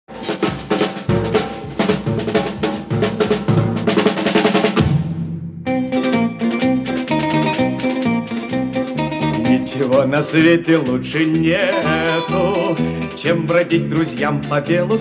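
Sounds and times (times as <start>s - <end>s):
drum-led instrumental music: 0.1s - 15.0s
plucked guitar: 5.6s - 15.0s.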